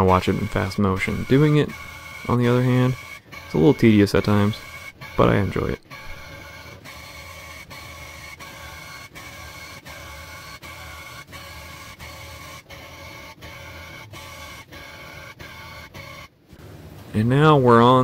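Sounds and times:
electric tufting gun whirring: 0:00.0 - 0:18.0.

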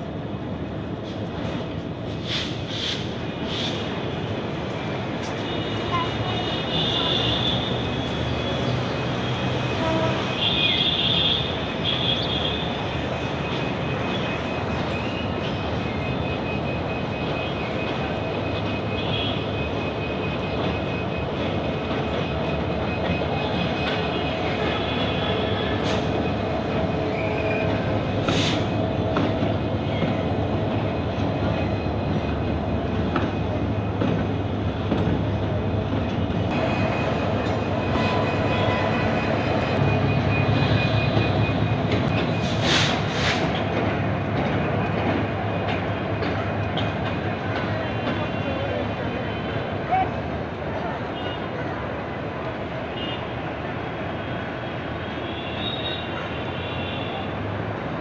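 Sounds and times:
diesel locomotive engine hum: 0:00.0 - 0:58.0
wheels rolling on rail: 0:11.4 - 0:55.0.

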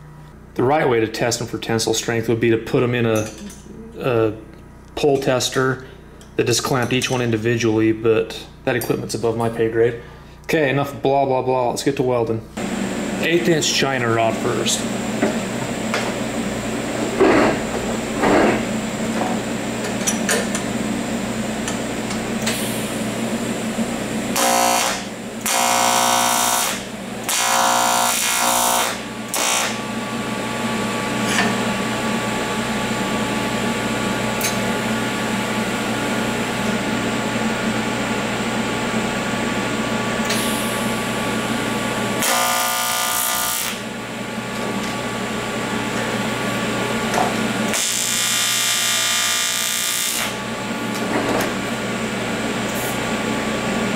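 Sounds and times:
welding arc buzzing: 0:12.6 - 0:35.6, 0:40.2 - 0:45.0, 0:45.6 - 0:51.8
welding machine humming: 0:17.6 - 0:39.1, 0:40.2 - 0:53.0.

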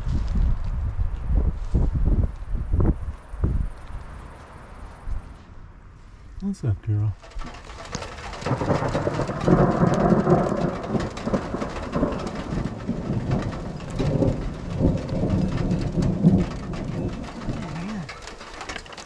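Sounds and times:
rain with sharp drop taps: 0:07.0 - 0:19.0
rolling thunder: 0:07.2 - 0:19.0.

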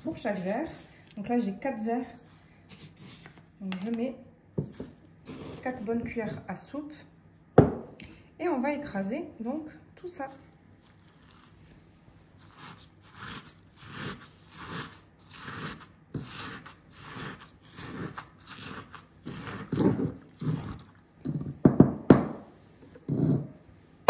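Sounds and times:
pestle grinding in stone mortar: 0:12.4 - 0:22.4.

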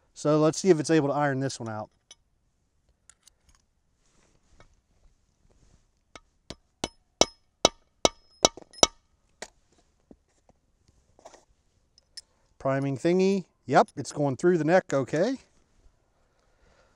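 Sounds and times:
mallet clinking on metal case: 0:06.2 - 0:09.0.

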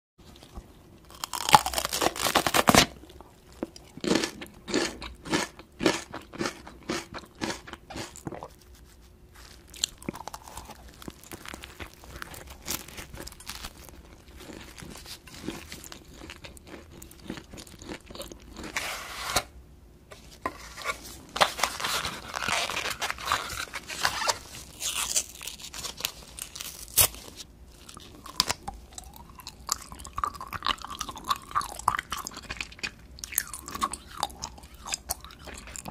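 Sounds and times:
crisp chewing: 0:00.2 - 0:18.8, 0:21.2 - 0:35.9
crunchy bite into pepper: 0:01.1 - 0:03.0
soft chewing and mouth sounds: 0:03.0 - 0:18.8, 0:24.5 - 0:35.9.

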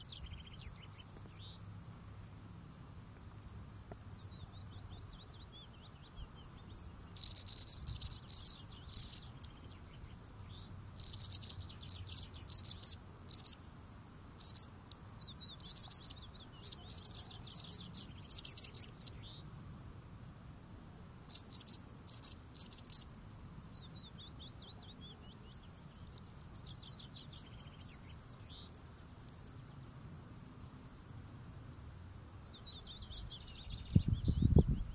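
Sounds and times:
cricket chirping: 0:00.0 - 0:34.9.

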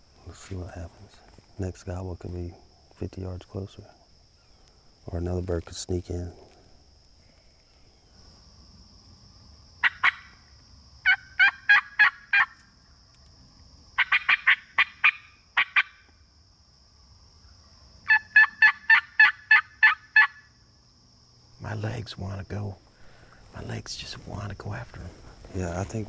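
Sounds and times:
turkey call yelps: 0:09.8 - 0:10.4, 0:11.0 - 0:12.6, 0:14.0 - 0:16.1, 0:18.1 - 0:20.5.

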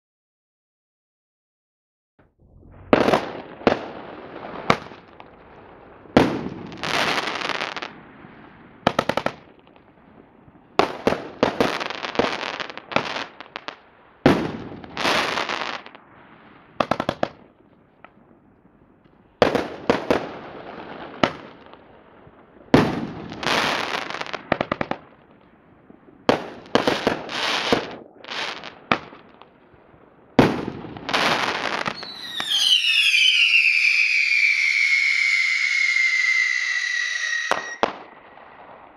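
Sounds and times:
firework crackling: 0:02.4 - 0:38.9
firework shells bursting: 0:31.2 - 0:38.9.

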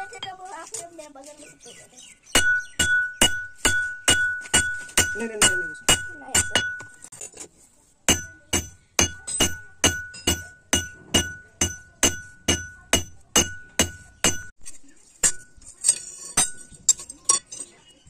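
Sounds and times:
hammer striking hot steel: 0:02.4 - 0:07.1, 0:08.1 - 0:14.6.

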